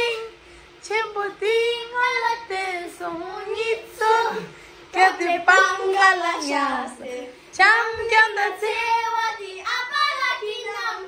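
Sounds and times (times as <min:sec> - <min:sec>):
girl singing high notes: 0:05.3 - 0:07.0.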